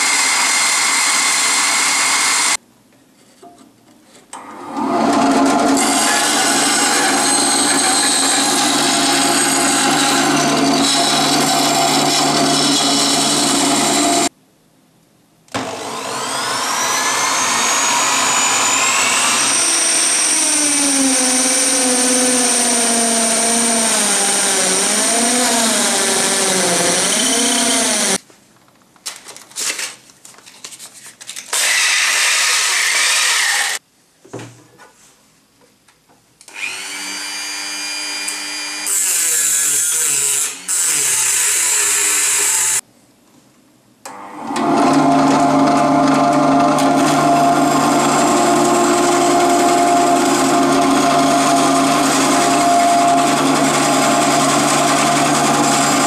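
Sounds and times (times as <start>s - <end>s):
band saw cutting wood: 0.0s - 2.6s, 4.6s - 14.3s, 15.6s - 28.2s, 31.6s - 33.8s, 36.5s - 42.8s, 44.1s - 56.0s
electric drill boring into wood: 0.0s - 2.6s, 4.7s - 14.3s, 15.6s - 28.2s, 31.5s - 33.8s, 36.5s - 39.4s, 44.1s - 56.0s
rotary tool high-pitched whine: 0.0s - 2.6s, 15.6s - 28.2s.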